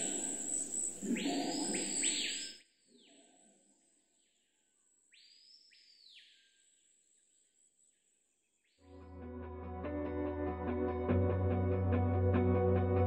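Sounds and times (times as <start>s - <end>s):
descending bird calls: 0.0s - 3.4s.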